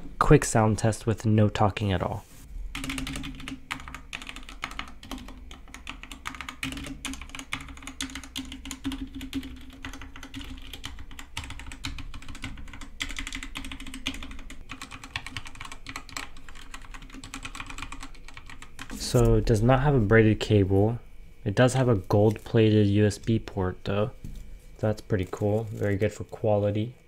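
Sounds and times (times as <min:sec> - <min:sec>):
mechanical keyboard typing: 0:02.8 - 0:19.0.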